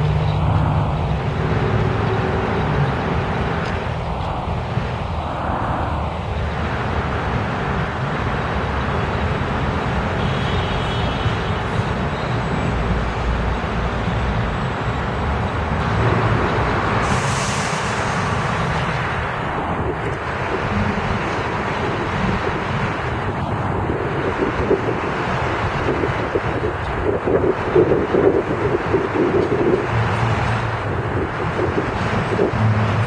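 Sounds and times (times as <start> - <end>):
subway train rumbling on track: 0.0 - 33.0
rising hiss: 17.0 - 18.6.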